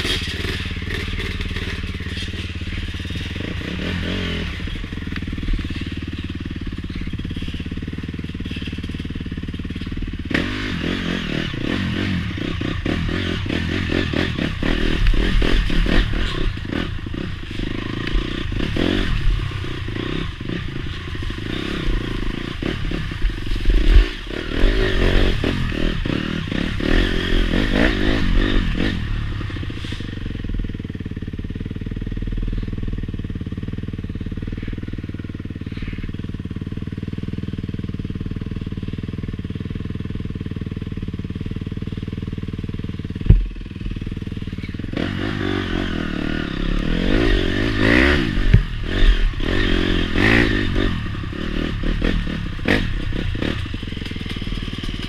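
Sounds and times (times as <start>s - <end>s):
bike rattling over rough ground: 0.0s - 55.0s
dirt bike engine revving: 0.0s - 55.0s.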